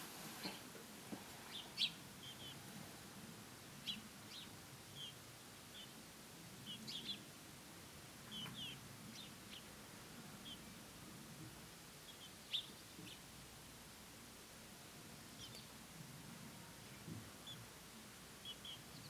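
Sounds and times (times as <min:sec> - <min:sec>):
sparrow chirping: 0:01.5 - 0:02.6, 0:03.8 - 0:06.0, 0:06.6 - 0:07.3, 0:08.3 - 0:09.7, 0:10.4 - 0:10.7, 0:12.0 - 0:13.2, 0:15.4 - 0:15.7, 0:18.4 - 0:19.0.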